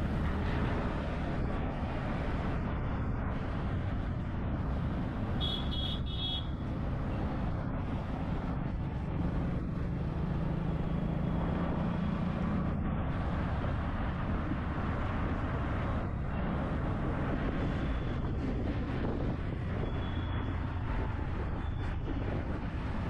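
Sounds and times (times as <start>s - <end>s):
low engine hum: 0.0s - 23.0s
road traffic: 0.0s - 23.0s
car horn beeps: 5.4s - 6.5s.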